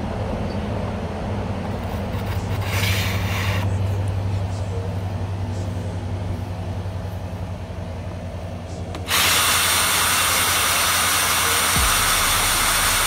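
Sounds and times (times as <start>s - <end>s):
power drill whirring: 9.0s - 13.0s.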